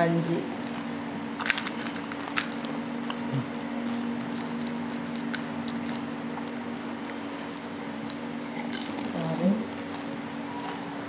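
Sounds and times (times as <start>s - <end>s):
crisp puris crackling: 0.6s - 10.4s
wet chewing and squishing: 1.4s - 9.1s.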